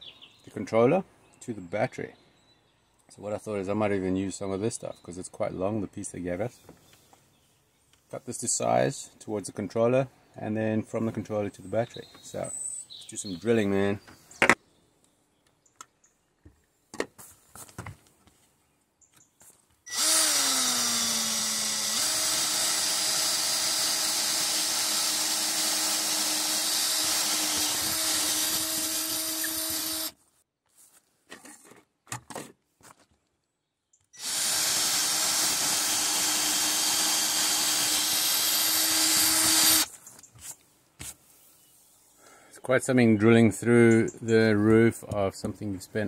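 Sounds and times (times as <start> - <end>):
cordless drill boring: 19.9 - 30.2, 34.2 - 39.9.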